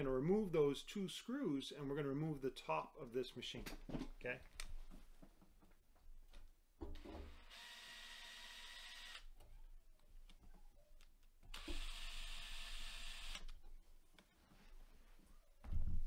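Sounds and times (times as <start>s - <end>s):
cordless drill whining: 7.3s - 9.3s, 11.5s - 13.5s.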